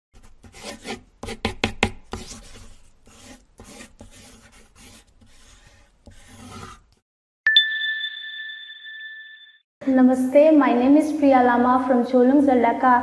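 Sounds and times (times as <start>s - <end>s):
pencil scratching on paper: 0.2s - 7.0s.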